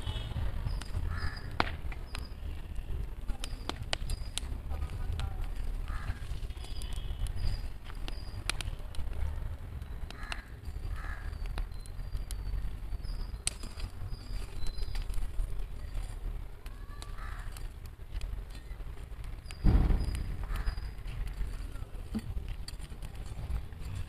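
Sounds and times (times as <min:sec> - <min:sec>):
steady low rumble: 0:00.0 - 0:24.0
crows cawing: 0:01.1 - 0:01.6, 0:05.8 - 0:06.3, 0:10.1 - 0:11.5, 0:16.9 - 0:17.6, 0:20.4 - 0:20.9
sharp clicks: 0:09.8 - 0:15.3
faint high bird chirps: 0:11.3 - 0:15.1.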